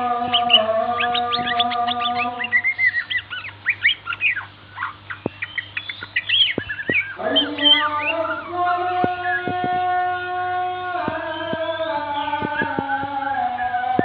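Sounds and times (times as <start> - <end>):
bird song chirps and whistles: 0.0 - 14.0
faint steady hum: 0.0 - 14.0
sharp clicks: 6.3 - 10.2, 11.0 - 14.0.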